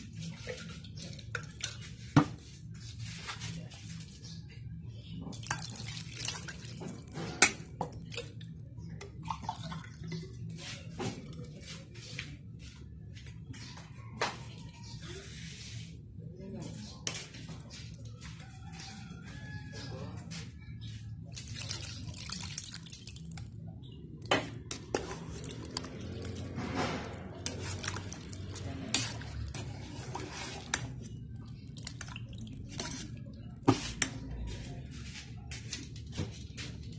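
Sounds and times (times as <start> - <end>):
water pouring into metal pot: 5.3 - 8.4, 21.3 - 23.6, 24.6 - 33.2
spatula scraping metal pot: 24.6 - 34.3.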